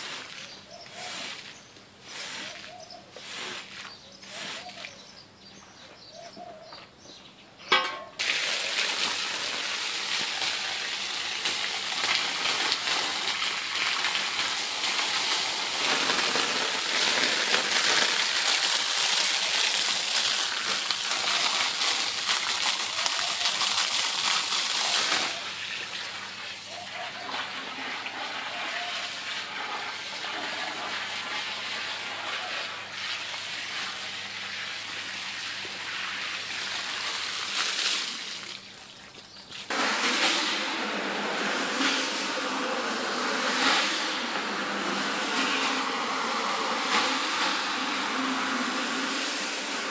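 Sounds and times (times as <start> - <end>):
water gushing onto carpet: 8.2 - 49.9.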